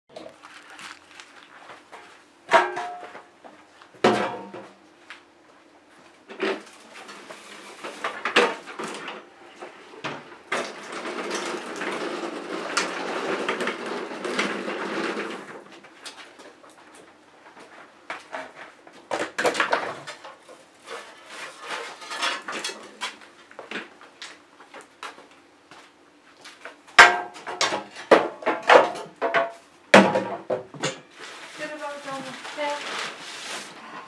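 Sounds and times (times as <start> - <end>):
scraping or rolling on concrete: 0.2 - 2.2, 10.5 - 16.2, 19.4 - 23.3.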